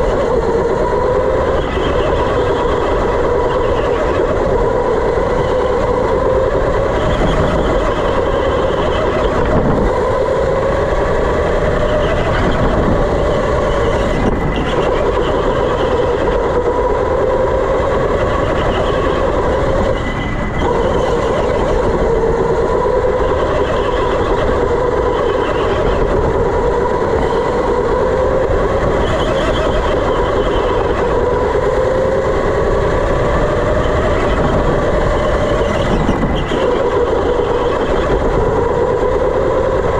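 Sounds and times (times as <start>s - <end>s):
electric motor whining: 0.0s - 39.9s.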